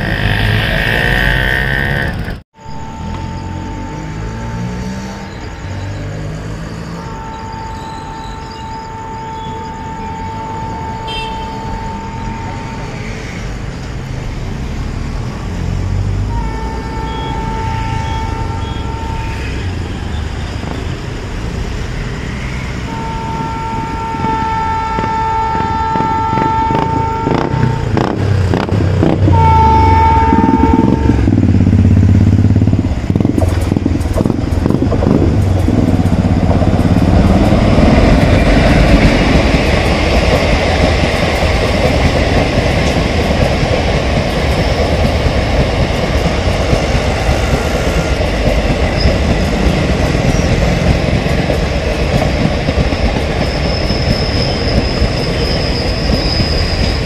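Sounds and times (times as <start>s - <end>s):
train rumble: 0.0s - 57.0s
train air horn blasts: 6.6s - 13.3s, 16.3s - 19.8s, 22.4s - 28.2s, 29.0s - 32.3s.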